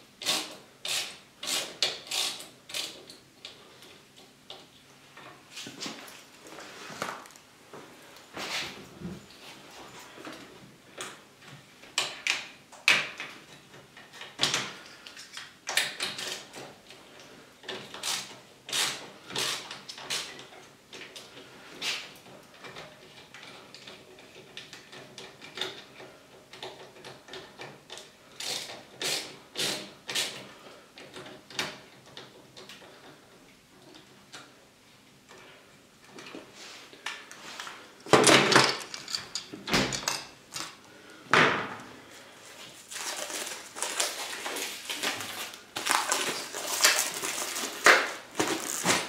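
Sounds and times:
tool clicking and rattling on glass: 0:22.2 - 0:29.1, 0:38.1 - 0:40.8.

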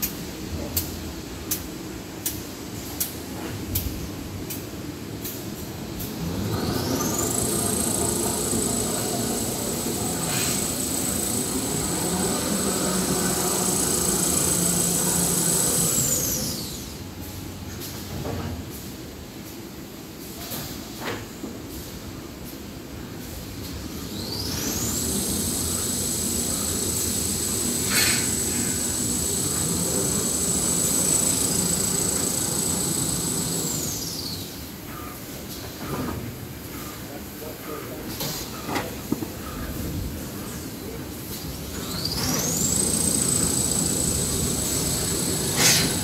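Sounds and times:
low mechanical rumble: 0:04.0 - 0:17.8, 0:23.4 - 0:35.0, 0:39.4 - 0:46.0
high-pitched machine whine: 0:05.7 - 0:17.4, 0:23.7 - 0:35.1, 0:39.4 - 0:46.0
paper machine running: 0:06.8 - 0:16.5, 0:24.7 - 0:34.0, 0:42.2 - 0:46.0.

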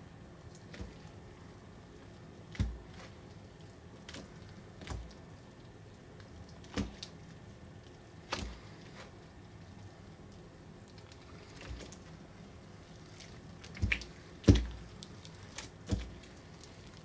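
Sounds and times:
wet slime plops and squelches: 0:02.4 - 0:07.3, 0:07.9 - 0:09.2, 0:12.8 - 0:17.0.

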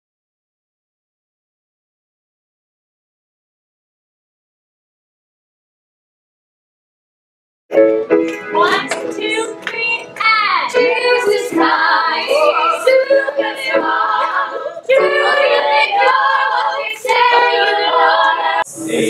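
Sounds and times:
group of voices singing: 0:08.6 - 0:19.0.

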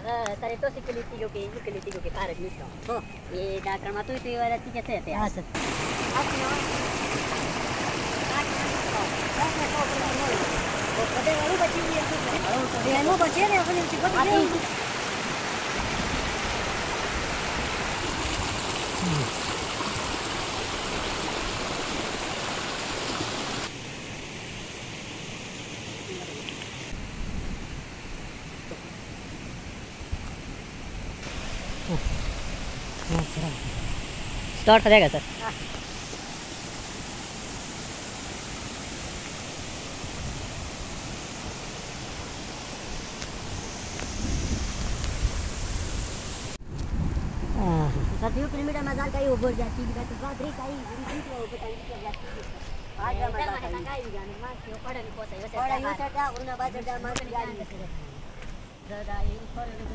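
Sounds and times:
stream rushing over stones: 0:05.5 - 0:27.0, 0:31.2 - 0:46.8.

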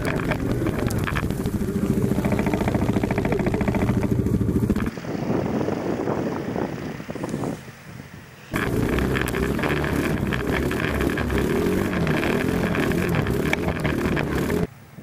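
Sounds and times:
rattling: 0:00.0 - 0:04.9, 0:08.6 - 0:14.7
atv engine running hard: 0:00.0 - 0:06.3, 0:08.5 - 0:14.7
distant engine: 0:00.0 - 0:06.4, 0:08.5 - 0:14.8
wind on microphone: 0:00.0 - 0:14.7.

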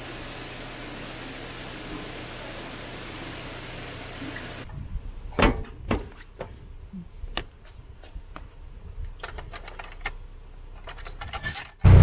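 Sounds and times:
water rushing: 0:00.0 - 0:04.7.

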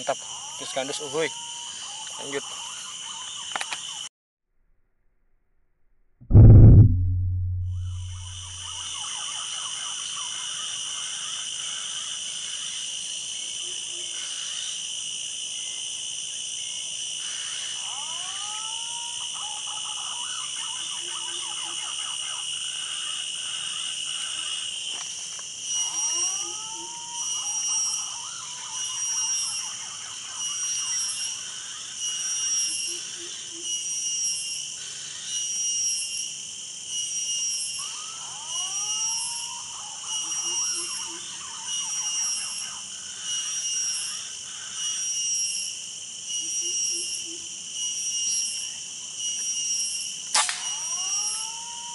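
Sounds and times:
insects chorus: 0:00.0 - 0:04.1, 0:08.1 - 0:51.9.

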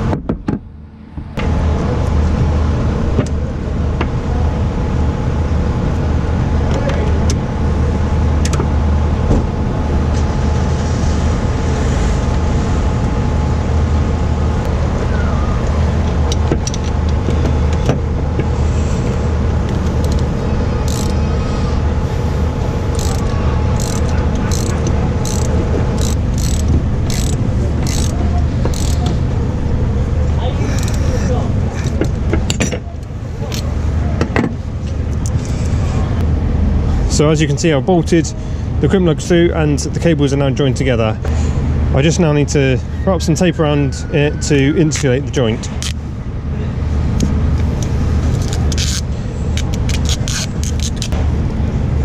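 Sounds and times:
engine humming: 0:00.0 - 0:52.0
socket ratchet clicking: 0:20.9 - 0:21.2, 0:22.9 - 0:29.1, 0:49.6 - 0:51.2.

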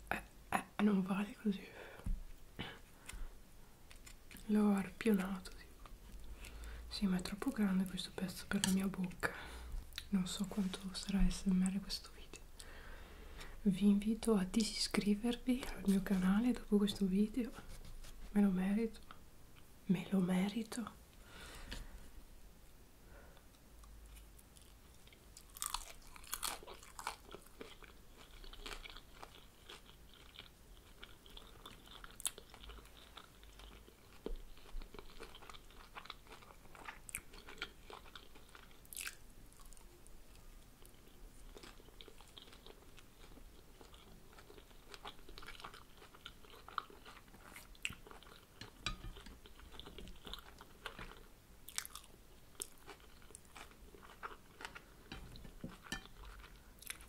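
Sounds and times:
chewing crisp fried food: 0:23.4 - 0:57.0.

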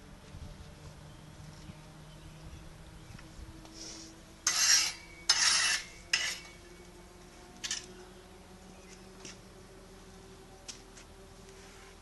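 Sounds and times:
masonry tool scraping brick: 0:04.4 - 0:06.5.

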